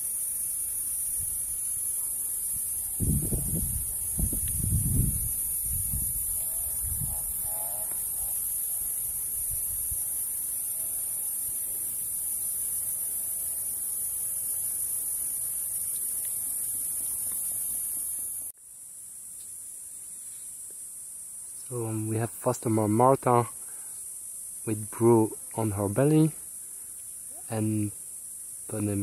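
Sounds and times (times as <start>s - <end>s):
insects droning: 0.0s - 29.0s
low rumbles on microphone: 3.0s - 7.4s.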